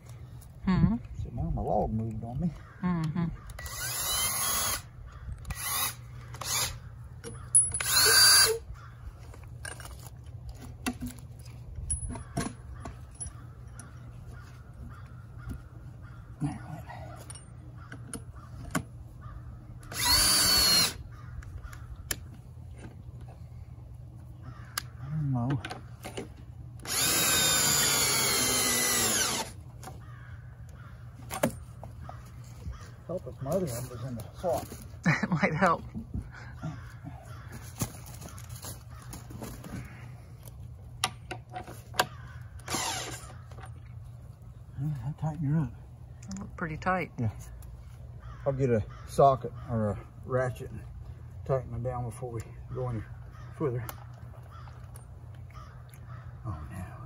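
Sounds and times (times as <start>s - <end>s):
cordless drill drilling wood: 3.6s - 6.8s, 7.8s - 8.6s, 19.9s - 21.0s, 26.8s - 29.6s, 42.6s - 43.4s
knocks of timber and tools: 31.2s - 32.2s.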